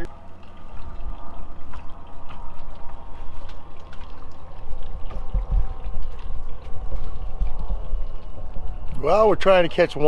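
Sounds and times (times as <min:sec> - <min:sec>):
low rumble: 0:00.0 - 0:09.7
water trickling and splashing: 0:00.0 - 0:10.0.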